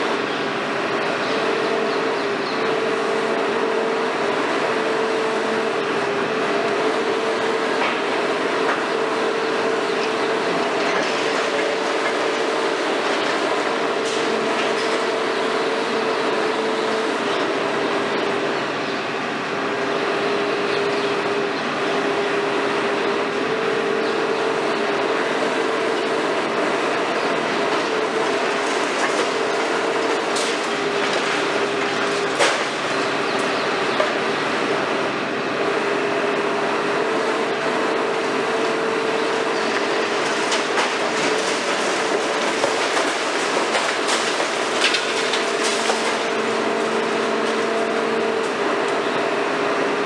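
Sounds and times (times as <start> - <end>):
concrete cracking and breaking: 39.8 - 47.8.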